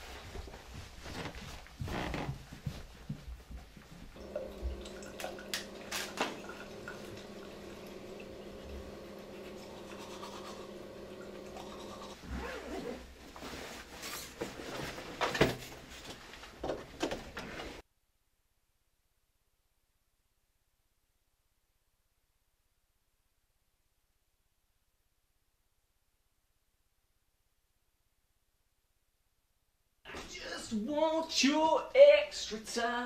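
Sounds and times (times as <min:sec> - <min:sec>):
shuffling: 0:00.0 - 0:04.2, 0:12.4 - 0:17.8
rustling movement: 0:00.0 - 0:04.3, 0:12.2 - 0:17.8
electric toothbrush buzzing: 0:04.2 - 0:12.4
scrubbing: 0:04.2 - 0:14.0.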